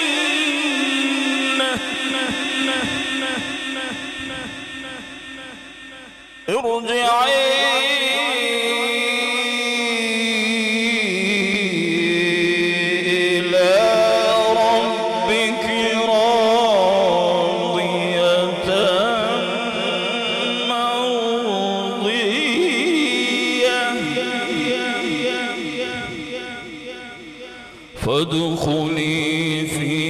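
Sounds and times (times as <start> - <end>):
man reciting melodically into microphone: 0.0 - 30.0.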